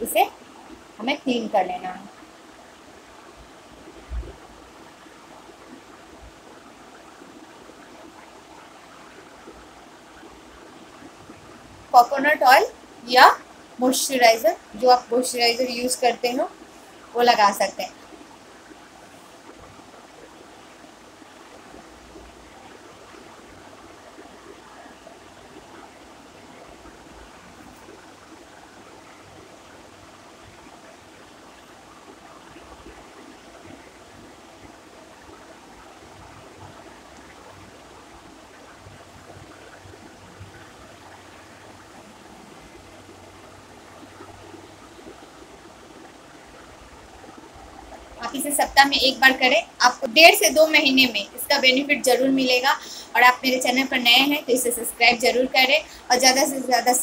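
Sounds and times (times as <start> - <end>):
faint low hum: 0.0 - 57.0
steady background hiss: 0.0 - 57.0.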